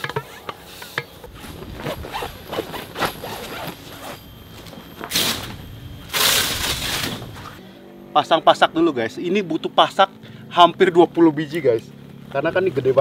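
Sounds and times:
tent zipper pull: 0:01.3 - 0:04.3.

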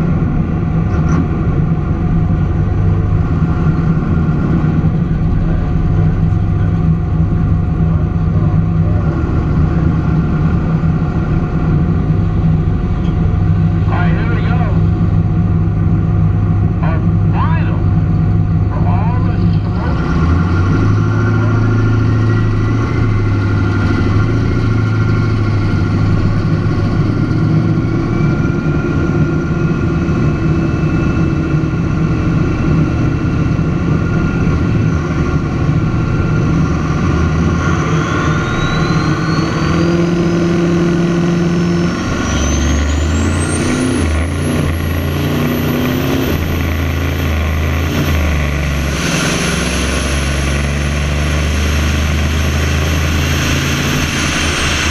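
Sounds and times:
diesel pickup engine: 0:00.0 - 0:54.9
drag car engine running: 0:00.0 - 0:54.9
thin whine rising in pitch: 0:20.9 - 0:47.7, 0:48.6 - 0:54.9.

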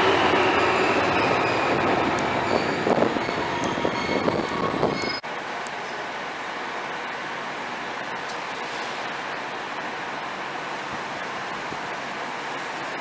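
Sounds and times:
train wheels rushing: 0:00.0 - 0:05.2.

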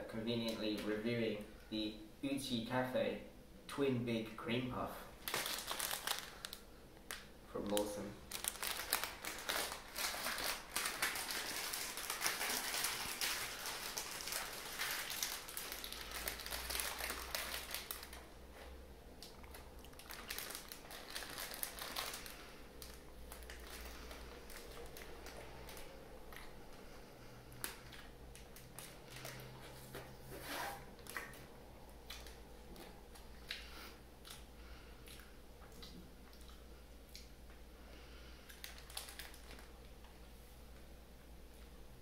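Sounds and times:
plastic bag crinkling: 0:05.2 - 0:18.4, 0:19.2 - 0:27.0, 0:27.6 - 0:31.5, 0:38.5 - 0:39.9.

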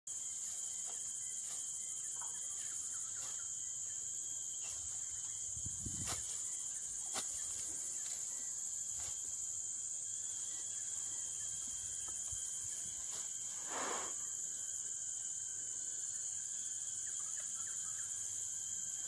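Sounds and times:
grass rustling: 0:00.1 - 0:14.3
high-pitched insect chorus: 0:00.1 - 0:19.0.

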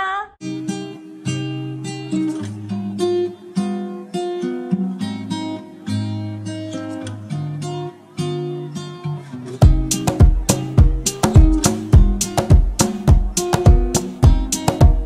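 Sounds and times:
acoustic guitar plucked melody: 0:00.4 - 0:15.0.

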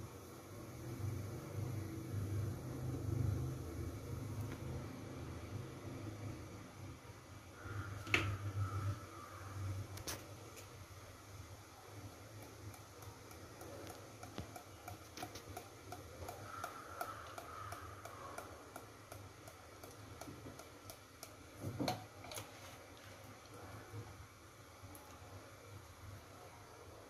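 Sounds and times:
faint ticking: 0:12.2 - 0:22.0.

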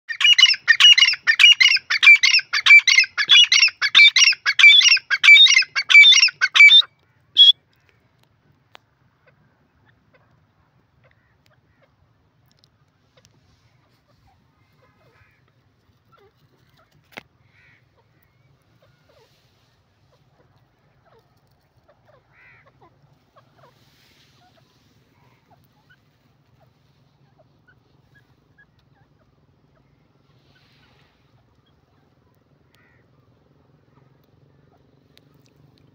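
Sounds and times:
francolin calling: 0:00.1 - 0:07.6.

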